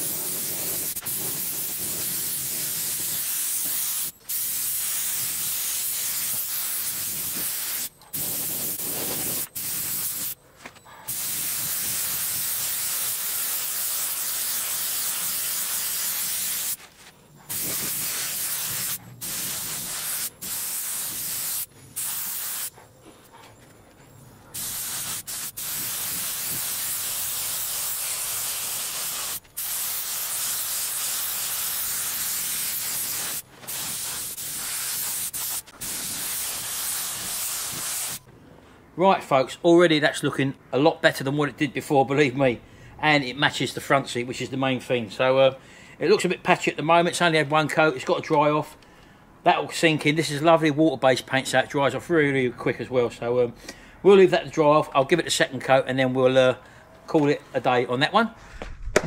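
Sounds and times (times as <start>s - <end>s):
spray gun hissing: 0.0s - 10.4s, 11.1s - 16.8s, 17.5s - 22.7s, 24.6s - 38.2s.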